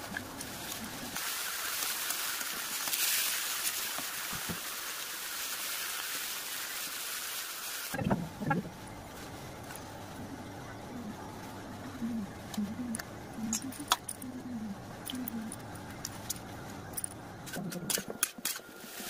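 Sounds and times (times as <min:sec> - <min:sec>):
vegetables sizzling in a wok: 0:00.0 - 0:08.0, 0:18.5 - 0:19.0.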